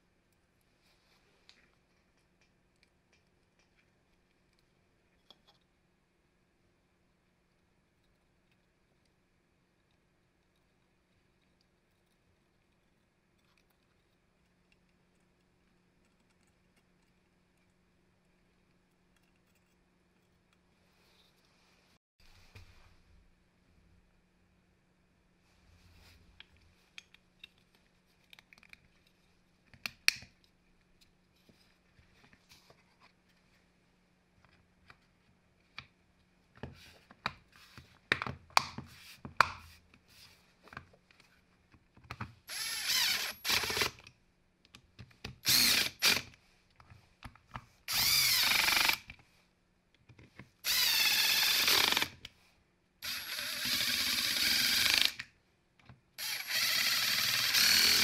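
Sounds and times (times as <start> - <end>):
cordless driver bursts: 45.4 - 46.3, 47.9 - 49.0, 50.6 - 52.1, 53.0 - 55.2, 56.2 - 58.0.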